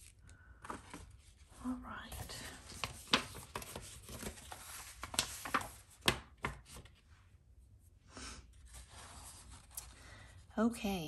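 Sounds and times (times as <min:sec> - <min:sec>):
rustling of handling: 0:00.0 - 0:07.0.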